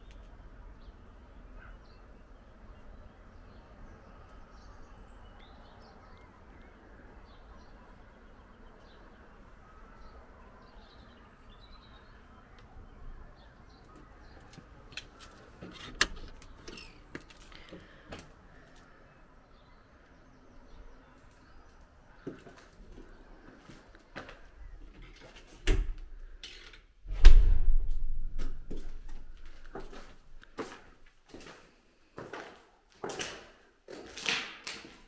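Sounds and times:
small birds chirping: 0:00.0 - 0:25.6
outdoor background noise: 0:00.0 - 0:35.0.

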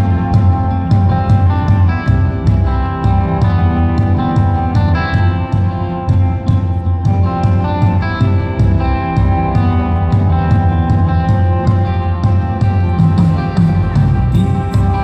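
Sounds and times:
drum kit steady beat: 0:00.0 - 0:15.0
electric guitar: 0:00.0 - 0:15.0.

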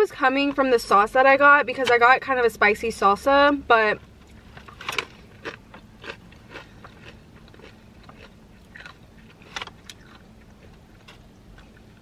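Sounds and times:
chewing crunchy tortilla chip: 0:04.5 - 0:12.0.

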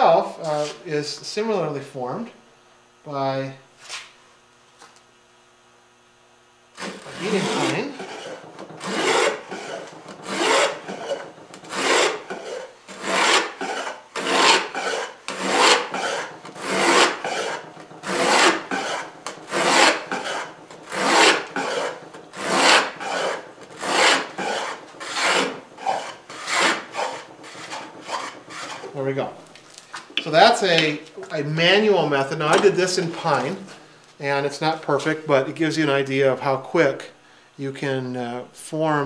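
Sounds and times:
wooden plane scraping wood: 0:06.8 - 0:29.2, 0:31.9 - 0:33.8.

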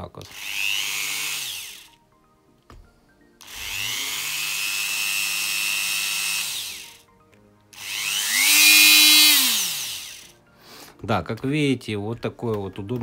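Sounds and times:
rotary tool whining: 0:00.3 - 0:02.0, 0:03.4 - 0:07.0, 0:07.7 - 0:10.3.

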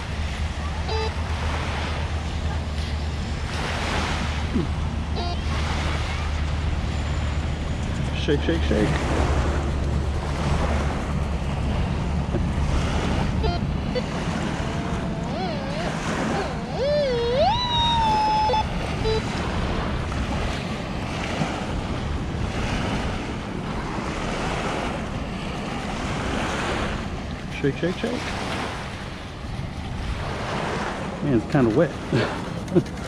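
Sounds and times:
surf washing on beach: 0:00.0 - 0:33.0
wavering rising tone: 0:00.4 - 0:08.2, 0:09.5 - 0:20.3.

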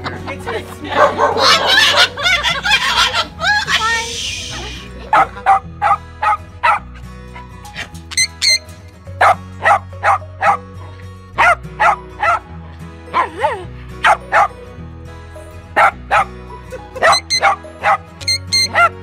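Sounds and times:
background music: 0:00.0 - 0:19.0
dog yelp: 0:05.1 - 0:06.8, 0:08.1 - 0:10.6, 0:11.4 - 0:12.4, 0:13.1 - 0:14.5, 0:15.8 - 0:16.3, 0:17.0 - 0:19.0
small dog barking: 0:05.1 - 0:06.8, 0:09.2 - 0:10.6, 0:11.4 - 0:12.4, 0:14.0 - 0:14.5, 0:15.8 - 0:16.3, 0:17.0 - 0:19.0.

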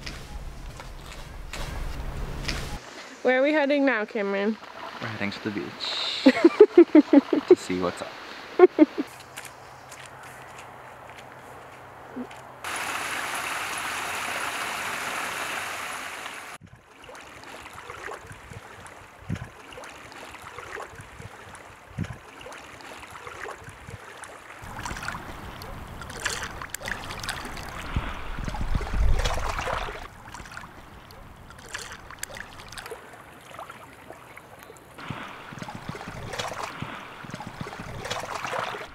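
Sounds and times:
rushing water: 0:01.0 - 0:09.2, 0:12.6 - 0:38.9
small water splashes: 0:04.3 - 0:09.6, 0:12.6 - 0:38.9
water lapping among rocks: 0:16.5 - 0:38.9.

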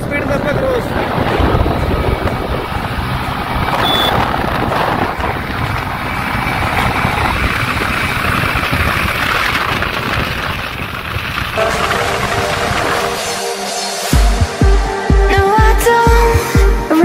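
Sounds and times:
wind buffeting microphone: 0:00.0 - 0:13.4
vehicle road noise: 0:00.0 - 0:14.6.

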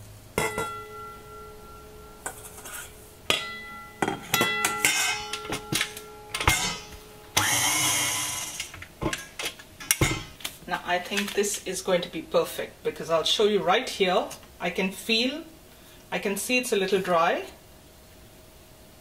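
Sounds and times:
metal spoon knocking on steel bowl: 0:00.4 - 0:07.0.

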